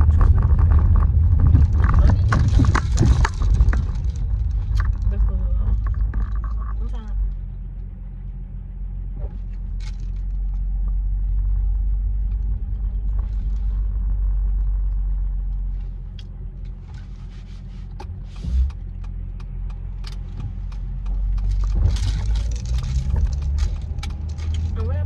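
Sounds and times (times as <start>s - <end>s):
car driving rumble: 0.0s - 25.0s
short thump: 18.0s - 18.8s.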